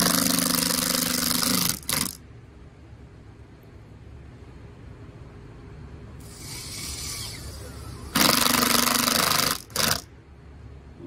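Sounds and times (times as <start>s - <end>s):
impact driver driving screw: 0.0s - 2.2s.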